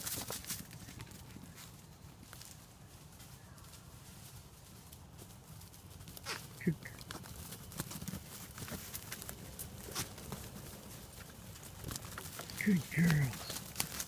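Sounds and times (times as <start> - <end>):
goat hooves trotting: 0.0 - 14.0
twigs snapping: 11.8 - 14.0
goat call: 12.4 - 13.7.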